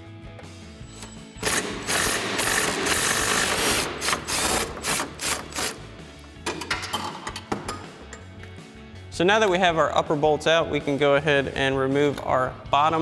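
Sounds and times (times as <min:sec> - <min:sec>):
cordless power tool bursts: 0:01.4 - 0:05.8.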